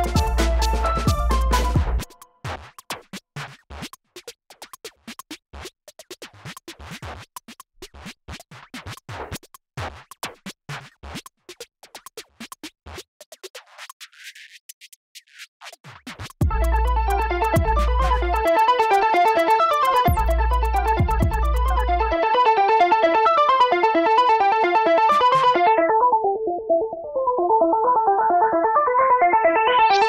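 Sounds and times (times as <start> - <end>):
electronic music: 0.0 - 2.3, 16.4 - 30.0.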